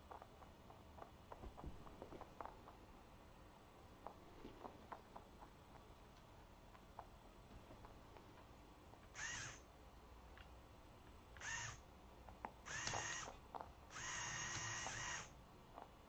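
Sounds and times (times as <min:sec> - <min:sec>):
servo motor whining: 0:09.2 - 0:09.6, 0:11.4 - 0:11.8, 0:12.7 - 0:13.3, 0:14.0 - 0:15.3.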